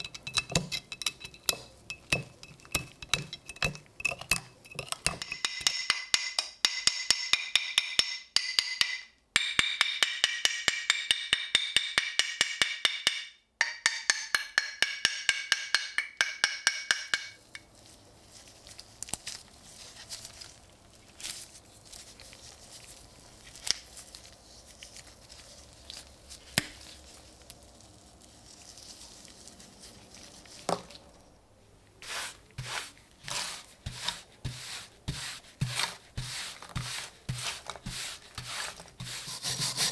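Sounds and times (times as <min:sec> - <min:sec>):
hammer tapping on steel: 0:05.1 - 0:17.4.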